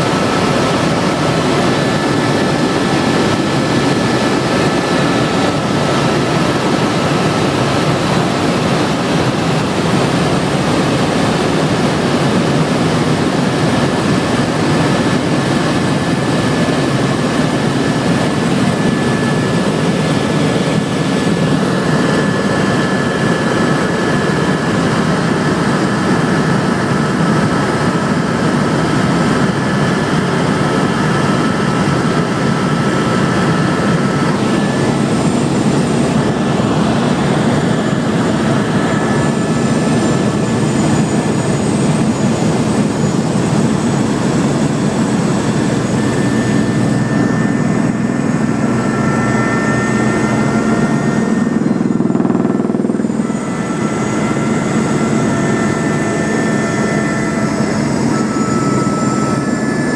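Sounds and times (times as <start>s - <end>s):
aircraft cabin engine drone: 0.0s - 59.9s
faint high whining tones: 29.0s - 59.9s.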